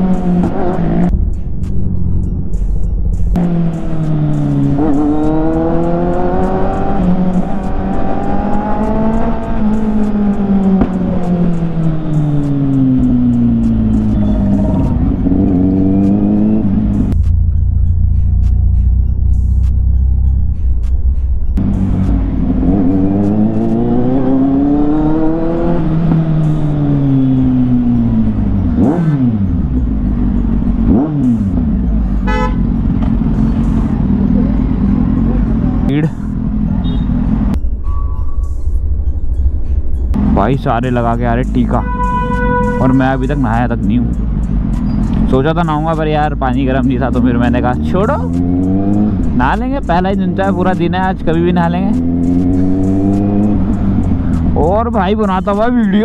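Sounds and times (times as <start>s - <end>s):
motorcycle engine revving: 3.3s - 20.0s, 21.6s - 37.6s, 40.1s - 56.0s
motorcycle engine running: 21.6s - 37.6s
vehicle horn toot: 32.2s - 32.8s, 36.8s - 37.3s, 41.8s - 43.3s.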